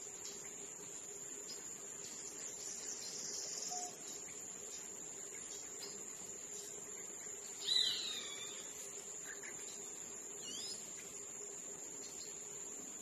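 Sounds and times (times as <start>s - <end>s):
high-pitched insect trill: 0.0s - 13.0s
birds whistling calls: 2.5s - 4.4s, 7.5s - 9.8s, 10.4s - 10.8s.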